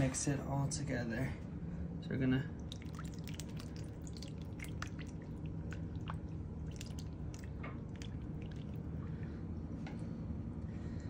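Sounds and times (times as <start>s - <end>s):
steady low hum: 0.0s - 11.0s
wet splats and drips: 2.6s - 8.9s.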